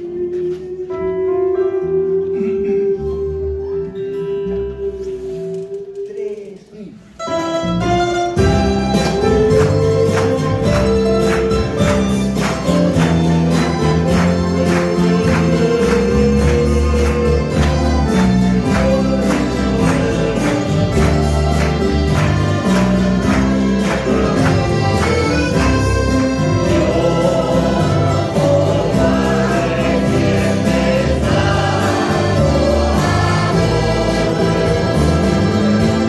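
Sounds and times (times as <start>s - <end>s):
string ensemble playing hymn: 0.0s - 36.0s
group singing: 9.1s - 36.0s.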